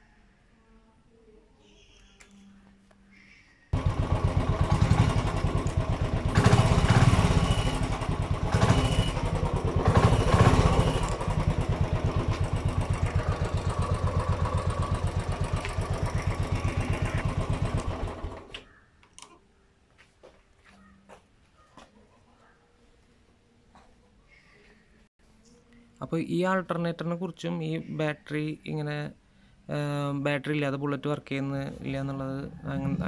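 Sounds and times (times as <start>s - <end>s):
motorcycle engine idling and revving: 3.8s - 18.6s, 31.8s - 33.0s.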